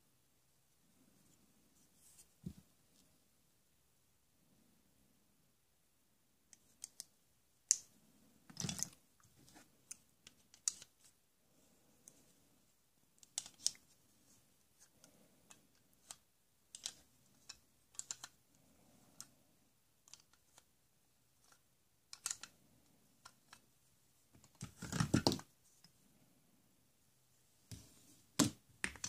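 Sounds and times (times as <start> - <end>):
plastic toy tools clicking: 9.9 - 10.9, 13.2 - 13.8, 15.5 - 18.4, 20.0 - 20.7, 21.4 - 22.5.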